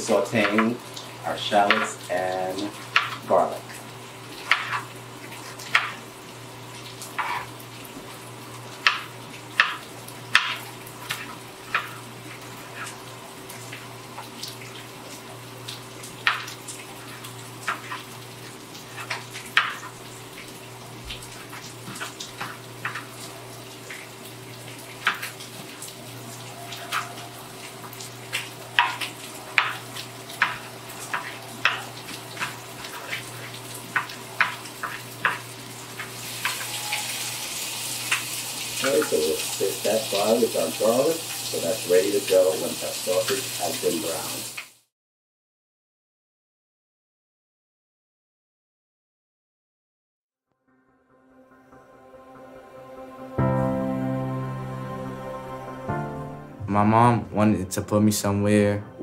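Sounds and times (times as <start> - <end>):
sausage sizzling in a pan: 0.0 - 44.8.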